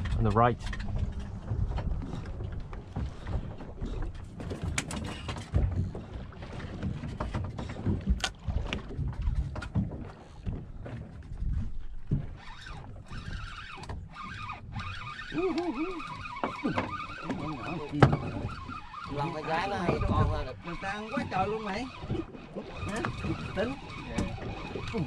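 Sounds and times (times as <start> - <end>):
wind buffeting the microphone: 0.0 - 12.3
water sloshing against a hull: 0.0 - 25.0.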